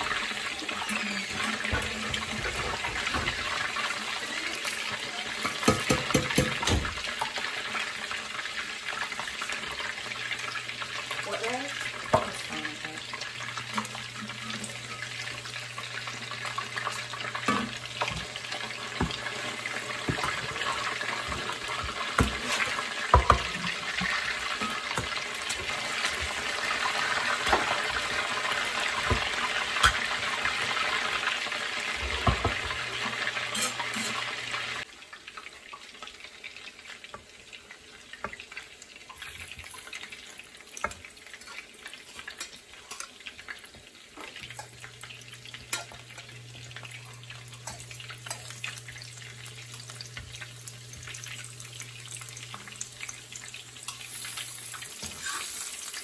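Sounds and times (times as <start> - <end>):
food sizzling in oil: 0.0 - 56.0
metal spatula clicks and scrapes: 33.5 - 34.2.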